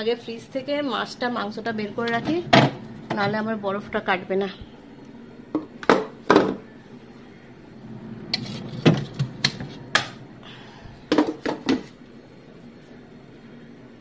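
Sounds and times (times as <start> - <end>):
plastic boxes knocking and clattering: 11.1 - 11.9.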